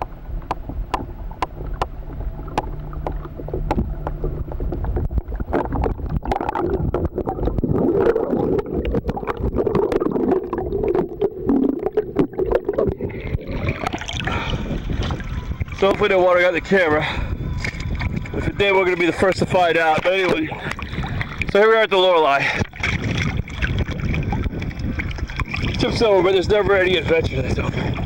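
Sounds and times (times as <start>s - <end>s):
sharp underwater clicks: 0.0s - 16.0s
low steady hum: 0.0s - 28.0s
muffled underwater rumble: 0.0s - 28.0s
water splashing: 0.0s - 28.0s.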